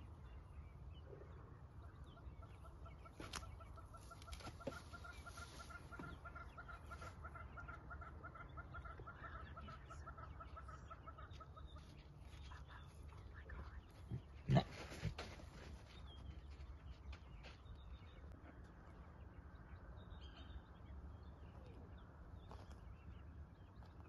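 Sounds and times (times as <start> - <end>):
animal clucking calls: 2.0 - 12.6.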